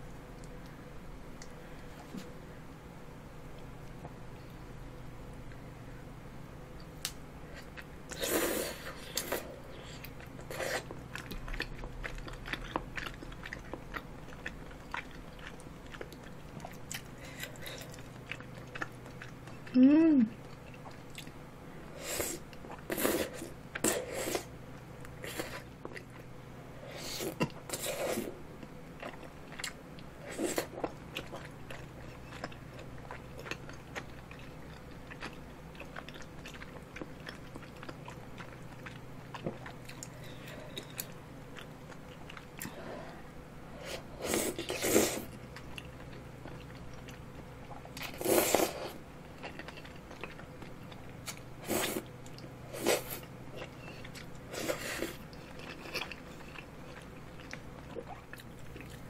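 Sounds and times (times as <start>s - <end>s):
chewing food: 6.8s - 21.4s, 24.7s - 26.4s, 27.2s - 43.2s, 44.5s - 59.0s
wet slurping of food: 43.9s - 45.3s, 48.0s - 49.0s.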